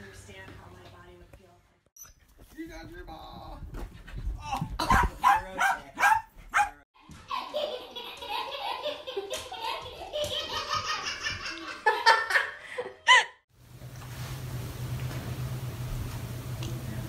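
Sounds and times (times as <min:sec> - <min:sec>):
small dogs barking: 0:04.8 - 0:06.8
people laughing: 0:07.3 - 0:13.4.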